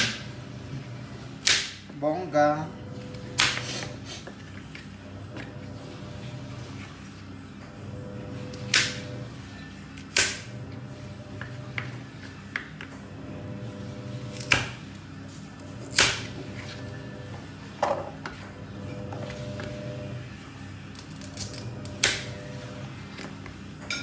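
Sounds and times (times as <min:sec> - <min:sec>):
knife chopping on cutting board: 0:14.3 - 0:14.8.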